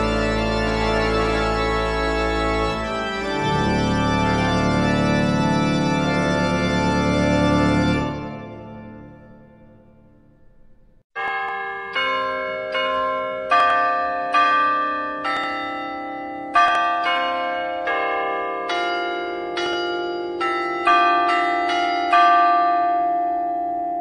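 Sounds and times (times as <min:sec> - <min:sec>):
carillon bells playing slow melody: 0:11.2 - 0:24.0.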